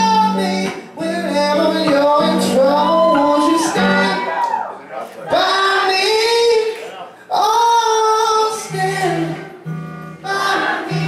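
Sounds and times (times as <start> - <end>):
man singing long held notes: 0.0 - 4.4.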